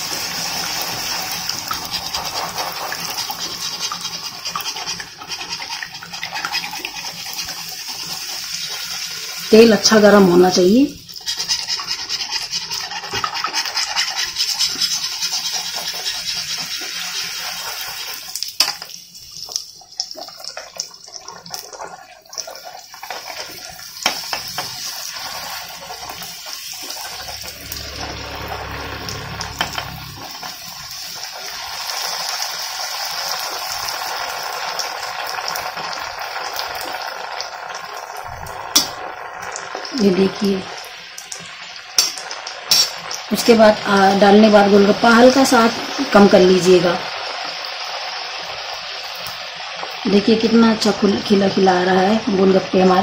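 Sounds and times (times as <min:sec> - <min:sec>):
food sizzling in hot oil: 0:00.0 - 0:53.0
metal spoon clicking on pan: 0:42.0 - 0:42.9.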